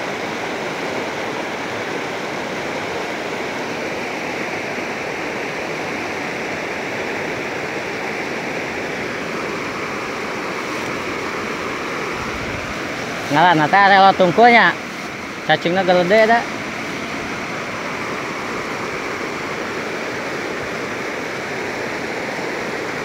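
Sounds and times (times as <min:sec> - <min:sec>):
river rushing over stones: 0:00.0 - 0:23.0.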